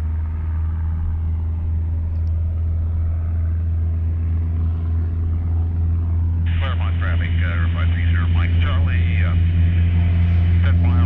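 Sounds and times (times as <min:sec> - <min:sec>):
light airplane engine droning: 0:00.0 - 0:11.0.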